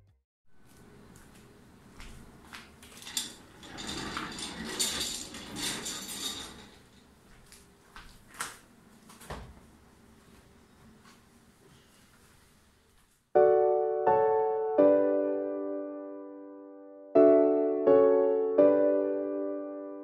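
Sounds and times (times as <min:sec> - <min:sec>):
objects clicking and clattering: 0:02.9 - 0:07.1.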